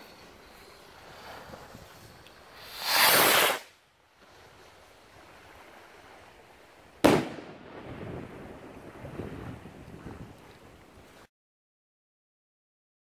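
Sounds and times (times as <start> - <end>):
firework rocket whooshing hiss: 0.0 - 3.8
firework bang: 7.0 - 8.3.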